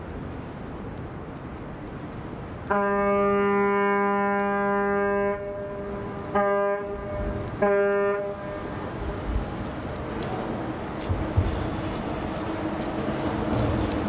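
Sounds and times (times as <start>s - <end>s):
ship's horn blasts: 2.7s - 8.9s.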